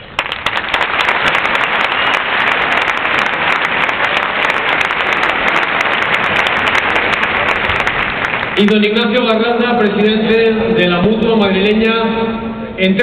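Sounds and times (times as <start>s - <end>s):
crowd applauding: 0.0s - 9.3s.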